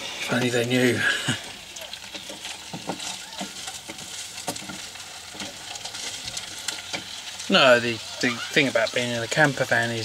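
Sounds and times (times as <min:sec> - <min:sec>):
food sizzling in a pan: 0:00.0 - 0:10.0
utensil scraping a pan: 0:02.0 - 0:10.0.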